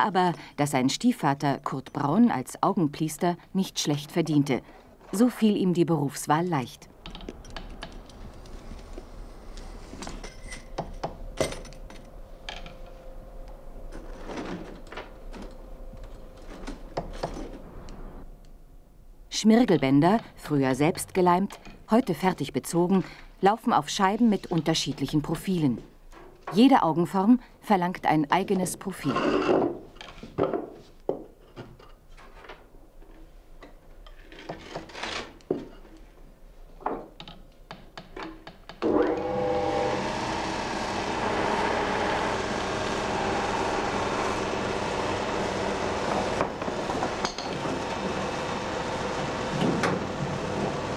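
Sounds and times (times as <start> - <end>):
metal tools knocking and clinking: 47.2 - 47.6.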